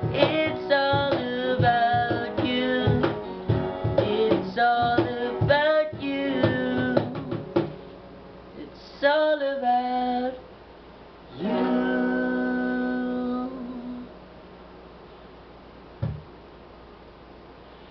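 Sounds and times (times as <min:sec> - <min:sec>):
knock: 0:07.0 - 0:07.8, 0:16.0 - 0:16.3.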